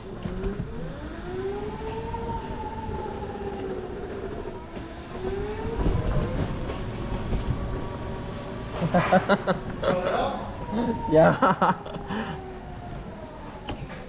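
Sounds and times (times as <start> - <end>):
wheels rumbling on concrete: 0.0 - 14.0.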